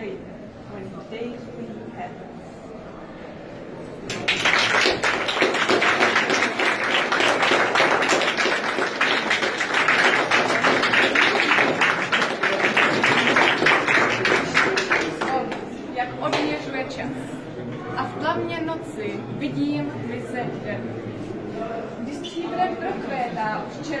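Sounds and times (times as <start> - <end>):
crowd applauding: 4.1 - 15.6.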